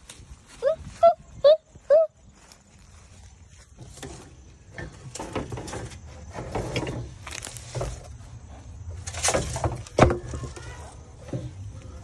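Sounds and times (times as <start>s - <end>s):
rake scraping in plastic tub: 3.6s - 12.0s.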